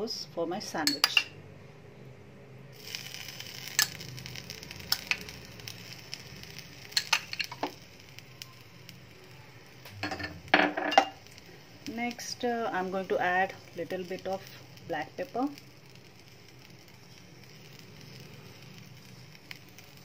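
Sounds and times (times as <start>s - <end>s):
metal spoon clinking: 0.9s - 1.3s, 7.0s - 7.7s, 10.0s - 11.2s
bread sizzling in frying pan: 2.7s - 20.0s.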